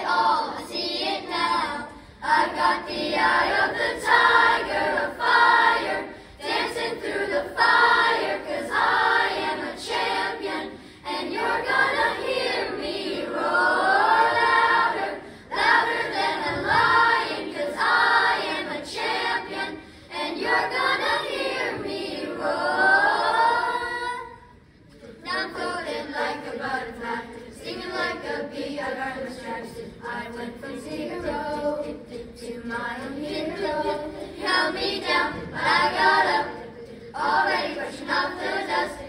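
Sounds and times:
children's choir singing: 0.0s - 39.0s.

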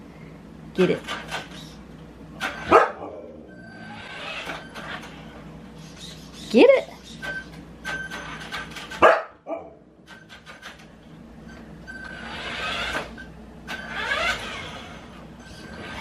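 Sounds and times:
dog barking: 2.6s - 3.3s, 9.0s - 9.8s
toy car motor whining: 3.6s - 5.3s, 11.9s - 16.0s.

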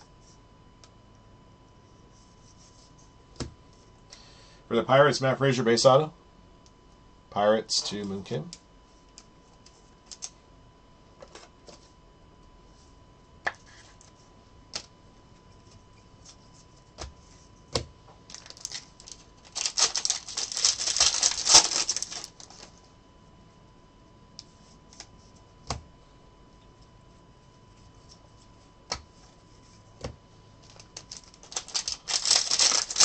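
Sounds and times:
foil wrapper crinkling and tearing: 18.3s - 22.7s, 30.6s - 33.0s.

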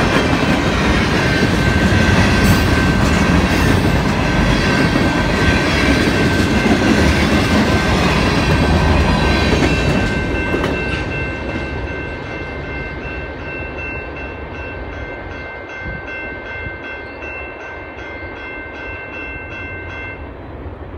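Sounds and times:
freight train cars rolling: 0.0s - 15.3s.

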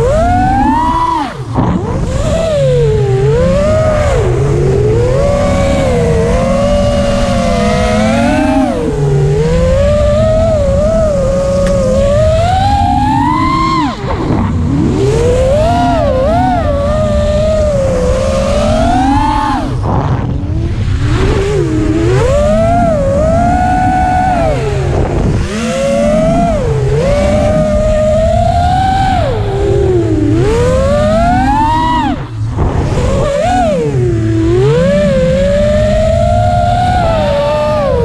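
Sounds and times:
drone motors whining: 0.0s - 38.0s
low rush of air: 29.2s - 34.4s.

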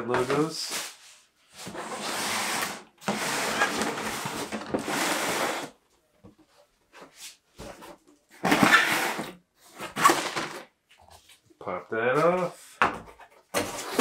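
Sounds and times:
cardboard sliding and scraping: 0.1s - 5.8s, 7.0s - 10.6s.

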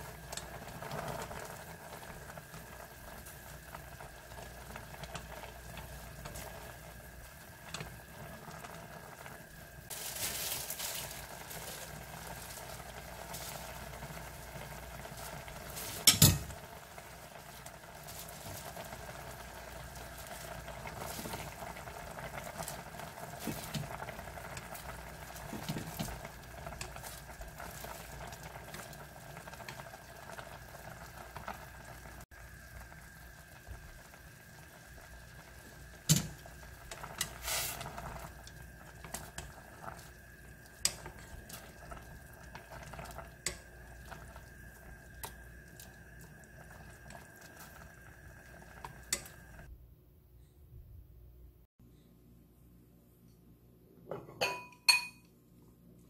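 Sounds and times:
broth boiling in pot: 0.0s - 49.8s
utensil clinking on metal pot: 16.0s - 16.5s, 54.4s - 55.3s.

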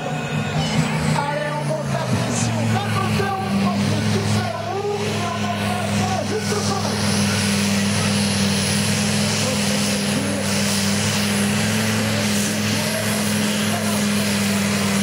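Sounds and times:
tractor engine loud drone: 0.0s - 15.0s.

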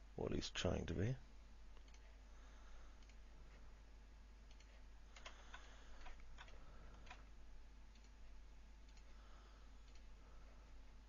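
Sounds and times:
low steady hum: 0.0s - 11.0s
computer mouse clicks: 1.7s - 2.1s, 3.0s - 3.2s, 4.4s - 7.3s, 7.9s - 8.2s, 8.8s - 9.1s, 9.8s - 10.1s.

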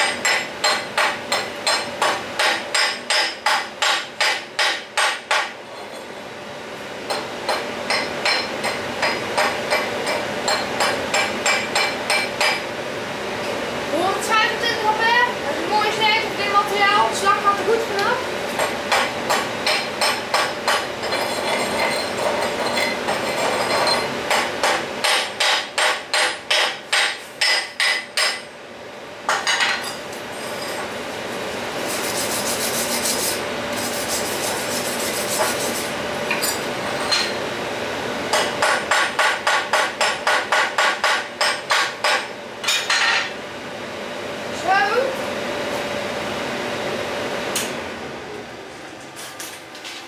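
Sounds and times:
wire brush scrubbing steel: 31.8s - 36.0s.

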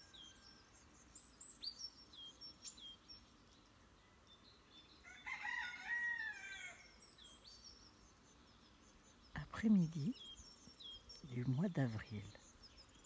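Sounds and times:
small birds chirping: 0.0s - 13.0s
rooster crowing: 5.0s - 6.9s.

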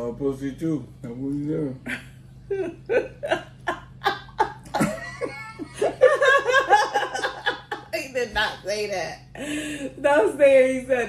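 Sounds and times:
woman laughing: 1.9s - 8.2s.

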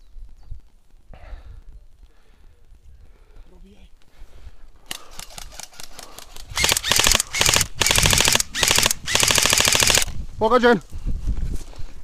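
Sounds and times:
airsoft rifle full-auto bursts: 4.9s - 10.1s.

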